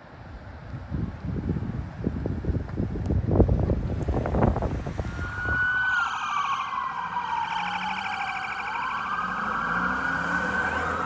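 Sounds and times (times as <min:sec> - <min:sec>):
police siren wailing: 0:05.0 - 0:11.0.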